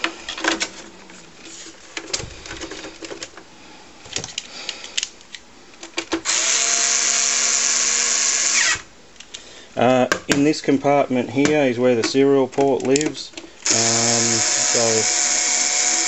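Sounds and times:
clicks and knocks of case parts: 0.0s - 6.3s, 11.4s - 13.6s
electric screwdriver running: 6.2s - 8.9s, 13.6s - 16.0s.

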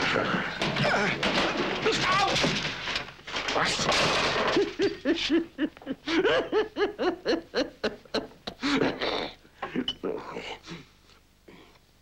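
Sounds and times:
man laughing loudly: 4.6s - 9.1s.

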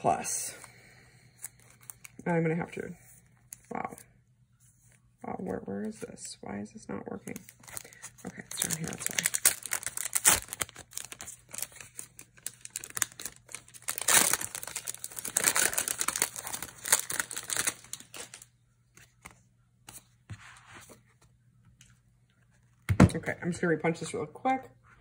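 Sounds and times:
plastic packaging crinkling: 1.4s - 2.2s, 7.2s - 19.3s.

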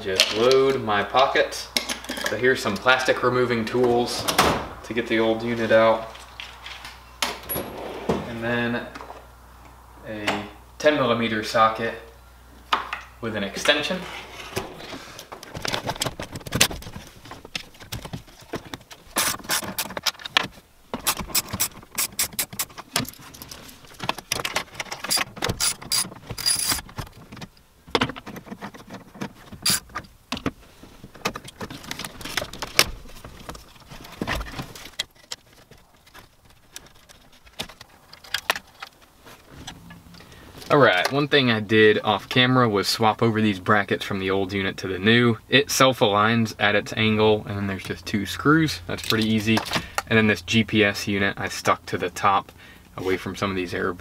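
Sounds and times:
car stereo being unbolted: 15.4s - 23.2s.

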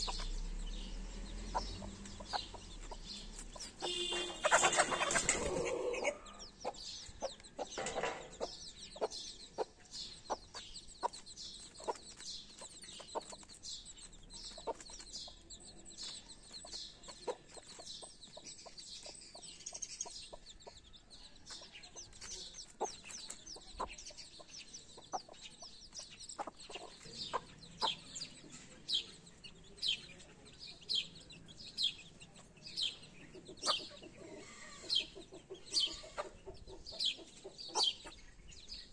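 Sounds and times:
chicks peeping: 0.0s - 38.9s
hen clucking: 1.3s - 13.6s, 21.5s - 38.4s.

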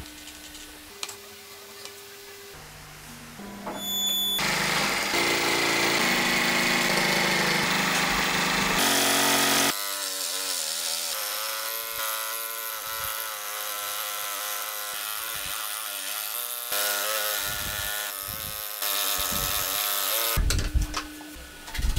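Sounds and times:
scroll saw running: 4.4s - 20.4s.

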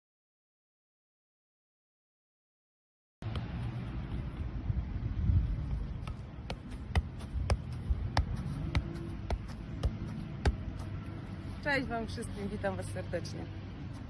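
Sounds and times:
football touches: 5.7s - 11.7s.

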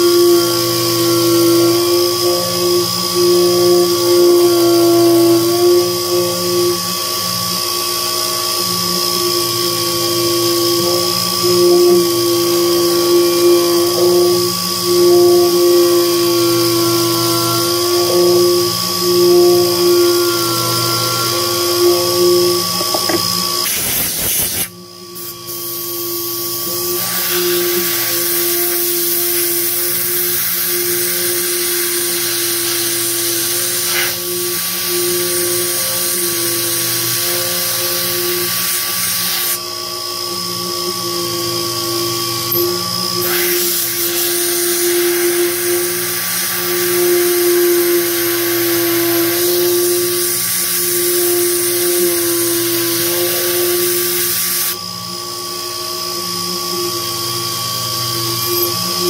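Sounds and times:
drill cutting into metal: 0.0s - 59.0s
milling machine spindle running: 0.0s - 59.0s
coolant mist sprayer hissing: 23.0s - 36.2s, 43.2s - 47.5s.

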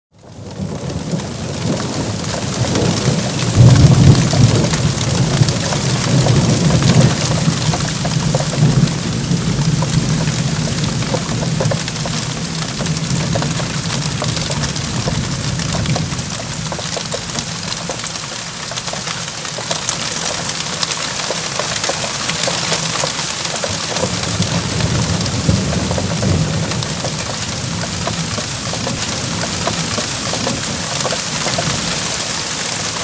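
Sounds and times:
heavy rain: 0.1s - 33.0s
low rumble of thunder: 0.2s - 17.5s, 23.7s - 32.2s.

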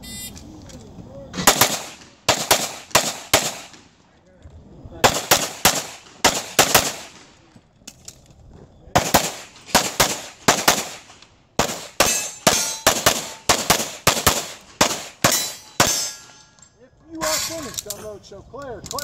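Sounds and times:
pistol shots: 1.4s - 3.9s, 5.0s - 7.3s, 8.9s - 16.4s.

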